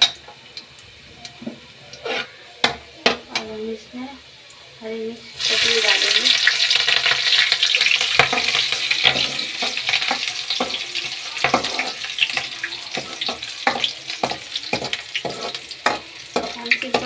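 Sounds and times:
spices sizzling in hot oil: 0:00.0 - 0:17.0
ladle scraping metal pan: 0:02.0 - 0:02.4, 0:14.7 - 0:17.0.

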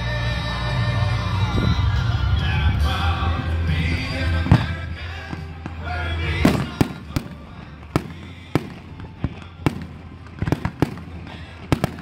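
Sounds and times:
fireworks bursting with sharp bangs: 0:04.3 - 0:12.0.

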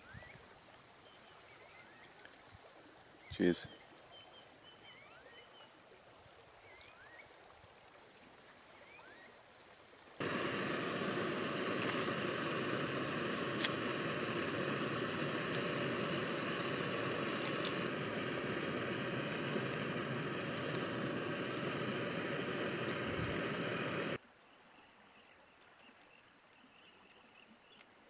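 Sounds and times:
camp stove burner hissing: 0:10.2 - 0:24.2
faint bird chirps: 0:24.4 - 0:27.9.

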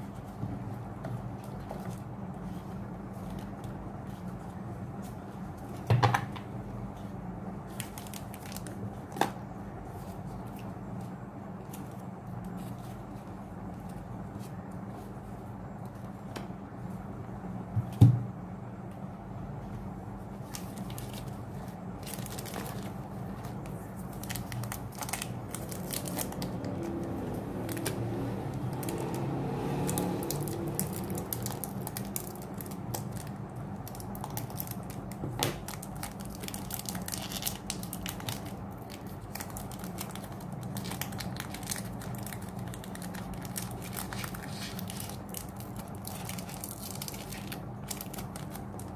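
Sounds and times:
steady low hum: 0:00.0 - 0:48.9
foil wrapper crinkling and tearing: 0:07.7 - 0:09.3, 0:20.4 - 0:28.0, 0:29.8 - 0:48.9.

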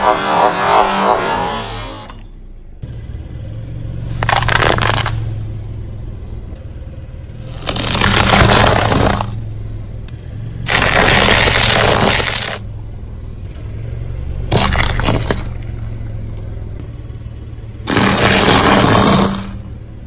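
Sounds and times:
car engine running: 0:00.0 - 0:20.0
tyre crushing objects: 0:04.2 - 0:05.2, 0:07.5 - 0:09.4, 0:10.7 - 0:12.6, 0:14.5 - 0:15.6, 0:17.9 - 0:19.6
sharp cracks: 0:04.2 - 0:05.4, 0:07.5 - 0:09.4, 0:10.6 - 0:12.6, 0:14.5 - 0:16.0, 0:17.8 - 0:19.6.

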